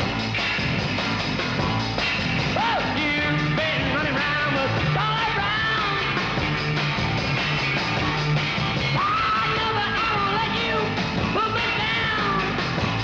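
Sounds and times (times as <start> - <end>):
rock and roll band: 0.0 - 13.0
lead singer: 2.5 - 6.5, 8.9 - 12.8.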